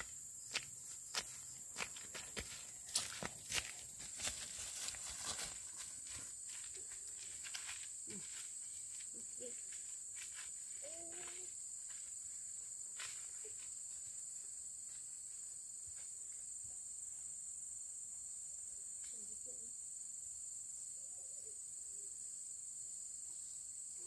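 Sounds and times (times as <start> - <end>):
footsteps on dirt path: 0.0 - 16.2
insects droning: 0.0 - 24.0
faint children's voices: 10.7 - 11.6.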